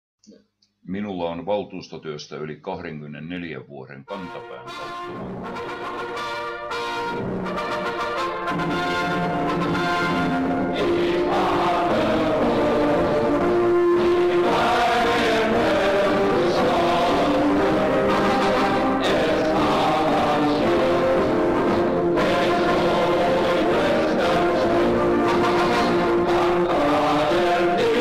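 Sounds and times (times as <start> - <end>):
choir singing slow chords: 7.6 - 28.0.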